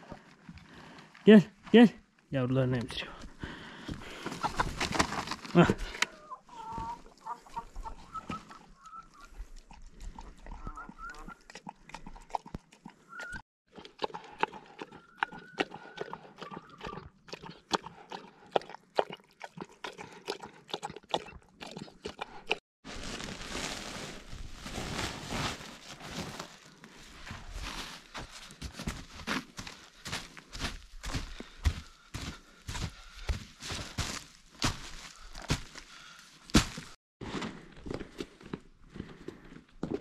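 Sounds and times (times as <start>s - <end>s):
dog lapping and slurping: 9.3s - 13.1s, 13.7s - 22.6s
feed rustling in a sack: 22.8s - 30.5s.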